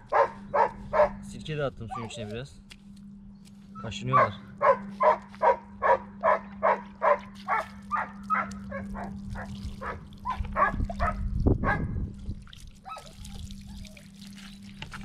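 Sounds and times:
steady low hum: 0.0s - 15.0s
dog barking: 0.1s - 1.2s, 1.9s - 2.5s, 4.1s - 11.9s.

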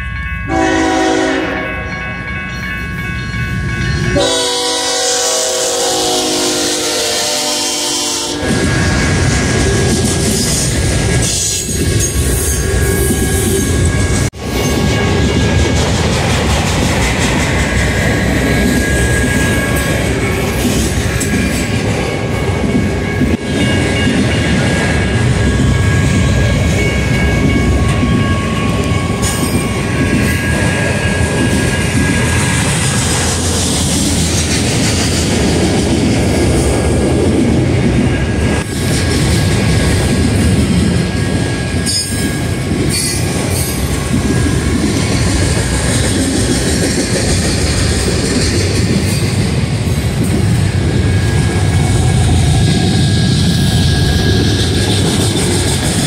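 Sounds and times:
train wheels rumbling on rail: 0.0s - 56.0s
high-pitched wheel squeal: 52.6s - 56.0s.

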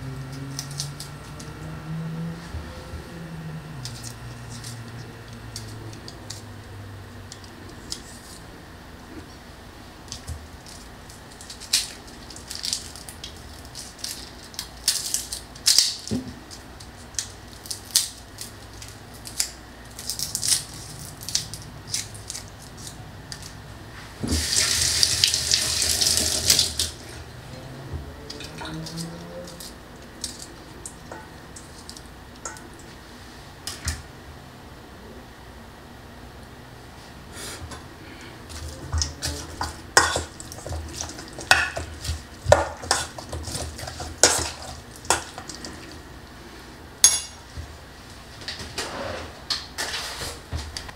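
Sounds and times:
water tap running: 24.3s - 27.0s.

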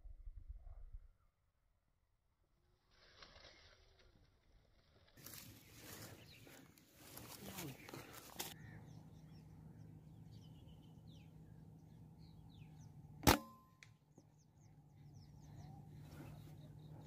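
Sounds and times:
small birds chirping: 5.2s - 13.2s, 14.0s - 17.0s
air rifle shot: 13.2s - 13.6s.

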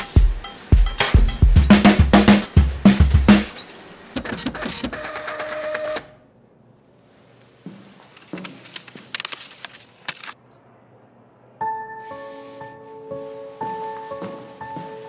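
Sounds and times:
printer whirring: 4.0s - 6.2s
paper handling noise: 7.4s - 10.6s.

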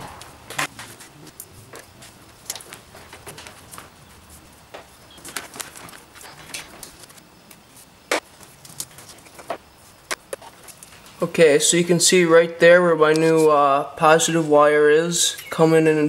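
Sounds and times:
wires and plastic harness rustling: 0.5s - 11.2s.

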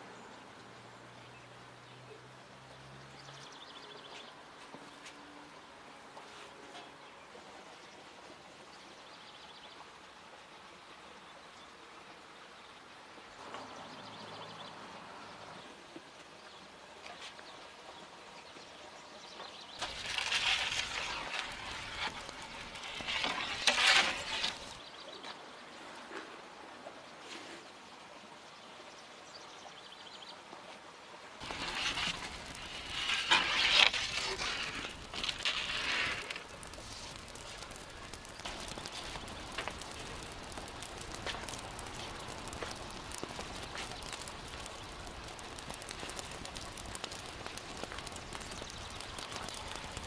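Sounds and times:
wood fire crackling: 19.8s - 24.8s, 31.4s - 50.0s
wooden peel scraping oven floor: 19.8s - 24.8s, 31.4s - 40.2s.

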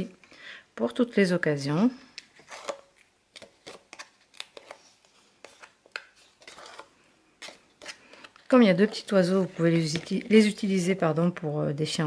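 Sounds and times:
paper rustling: 2.4s - 10.7s.

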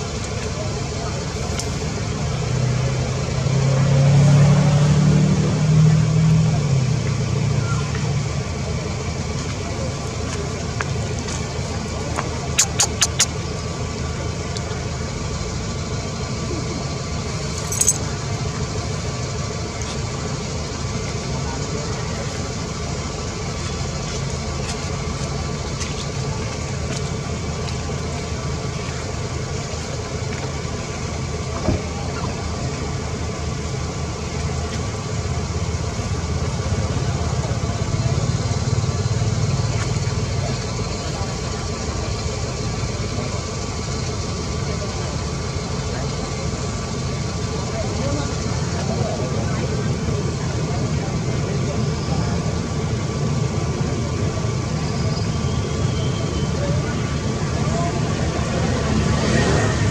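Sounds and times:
low mechanical hum: 0.0s - 59.9s
sharp click: 12.6s - 13.4s.

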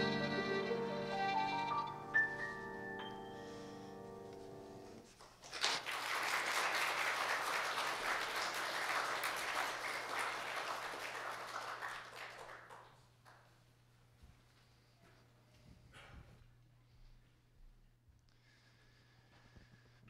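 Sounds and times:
violin and piano note: 0.0s - 5.0s
audience applause: 5.4s - 13.5s.

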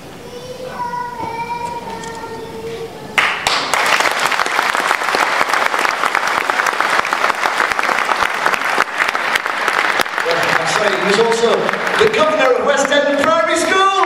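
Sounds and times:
crowd applauding: 3.2s - 14.0s.

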